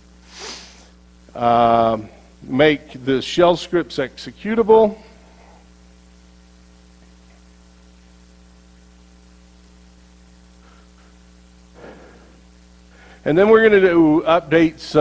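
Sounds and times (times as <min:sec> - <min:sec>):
electrical mains hum: 0:00.0 - 0:15.0.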